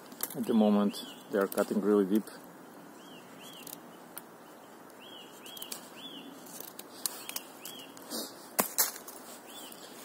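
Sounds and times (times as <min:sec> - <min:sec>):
small bird chirping: 0:02.8 - 0:08.0, 0:09.4 - 0:10.0
knife shaving wood clicks: 0:06.5 - 0:08.0.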